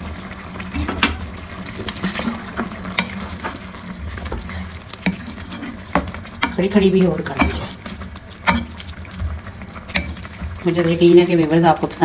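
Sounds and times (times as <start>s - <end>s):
food sizzling and bubbling in a pot: 0.0s - 12.0s
sharp clicks against a pot: 5.9s - 6.7s, 7.3s - 7.7s, 8.4s - 8.8s, 9.9s - 10.3s.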